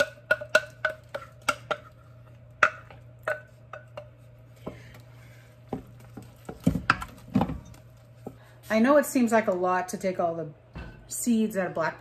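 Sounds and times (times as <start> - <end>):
wooden spoon knocking on a pot: 0.0 - 1.9, 2.5 - 4.9.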